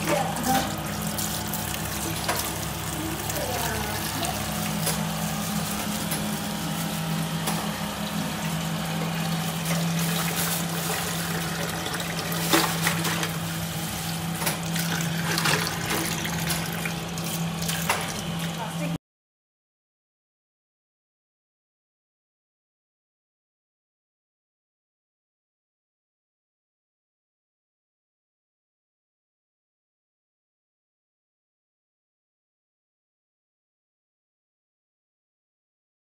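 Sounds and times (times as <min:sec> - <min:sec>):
tap water running into steel bowl: 0:00.0 - 0:06.7, 0:07.4 - 0:18.8.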